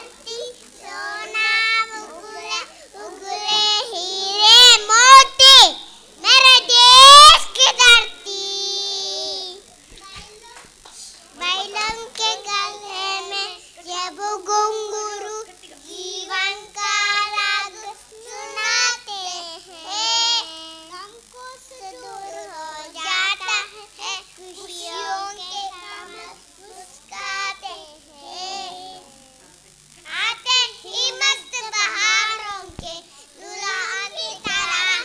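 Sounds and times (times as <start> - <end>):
children singing: 0.0 - 9.6, 11.4 - 20.8, 21.4 - 29.2, 30.4 - 35.0.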